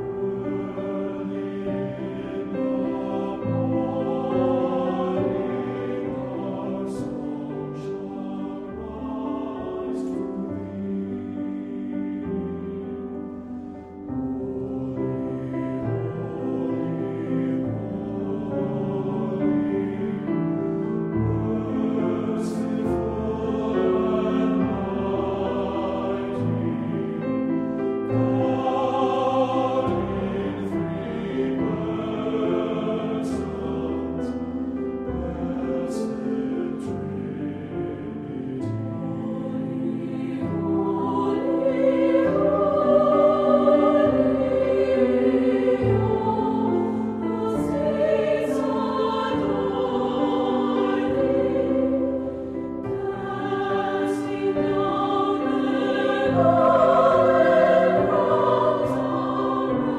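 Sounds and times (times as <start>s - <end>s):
choir singing sacred piece: 0.0s - 59.9s.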